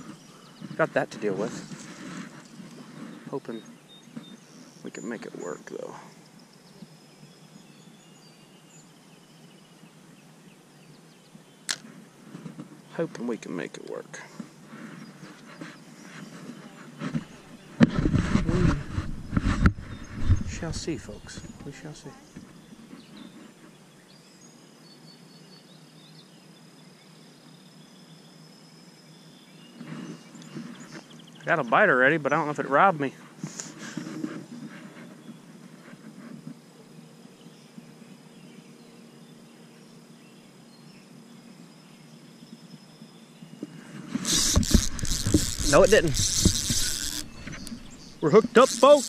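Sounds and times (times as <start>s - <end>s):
faint outdoor background noise: 0.0s - 49.0s
low even hiss: 0.0s - 49.0s
sharp click: 11.7s - 11.9s
faint chirps: 18.4s - 35.6s, 36.7s - 49.0s
thin high tones: 44.2s - 49.0s.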